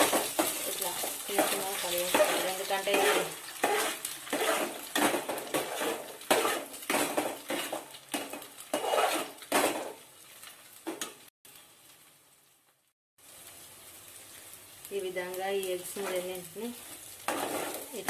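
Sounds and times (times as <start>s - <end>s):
spoon scraping frying pan: 0.0s - 10.0s, 16.0s - 18.0s
eggs frying in oil: 0.0s - 18.0s.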